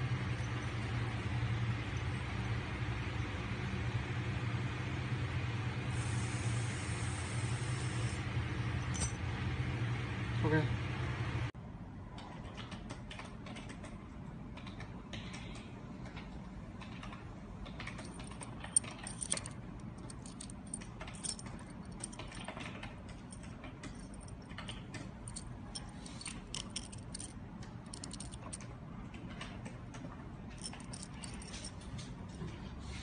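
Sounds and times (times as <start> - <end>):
metal screws clinking: 18.0 - 22.6, 23.3 - 24.6, 25.2 - 28.6, 30.6 - 31.8.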